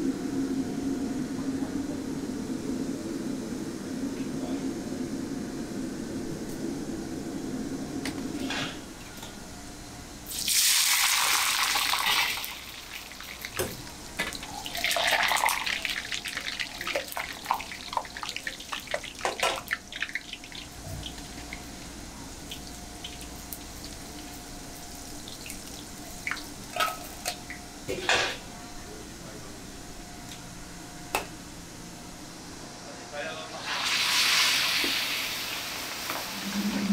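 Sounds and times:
food sizzling in hot oil: 10.3s - 13.6s, 33.6s - 36.6s.

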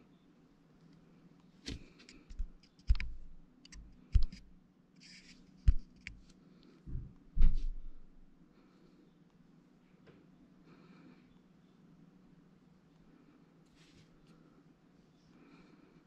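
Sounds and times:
faint steady hum: 0.0s - 16.0s
fingers tapping a smartphone: 2.1s - 4.5s.

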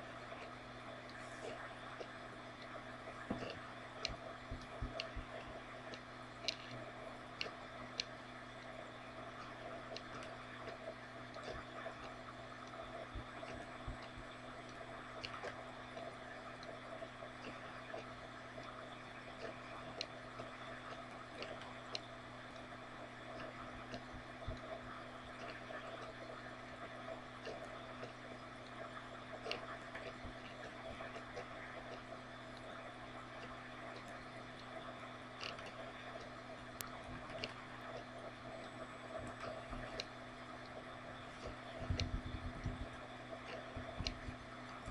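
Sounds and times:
low room hum: 0.0s - 44.9s
faint clicks: 9.4s - 16.8s.

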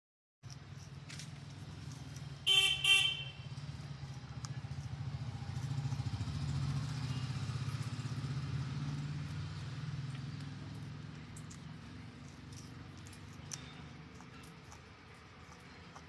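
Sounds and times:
vehicle horn honks: 2.5s - 3.5s.

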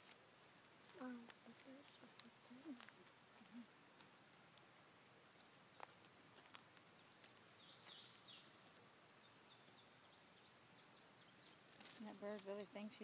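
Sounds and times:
faint clicks: 1.2s - 4.7s.

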